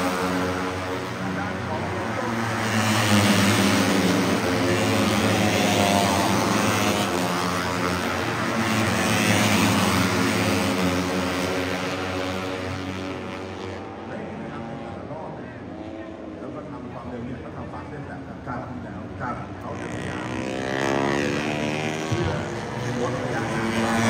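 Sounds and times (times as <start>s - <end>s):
motorcycle engines screaming past: 19.7s - 24.0s.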